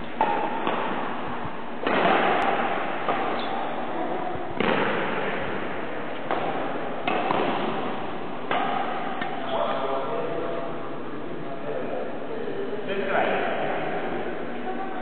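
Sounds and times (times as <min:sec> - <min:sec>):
rackets striking shuttlecock: 0:00.1 - 0:01.2, 0:01.8 - 0:03.8, 0:04.6 - 0:09.4.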